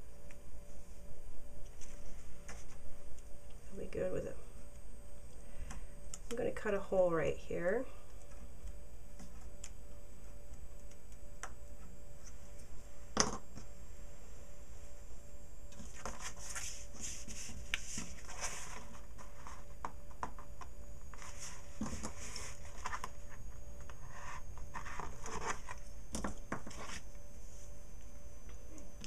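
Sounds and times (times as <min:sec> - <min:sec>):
paper sliding and rustling: 0:15.8 - 0:19.7, 0:21.1 - 0:23.1.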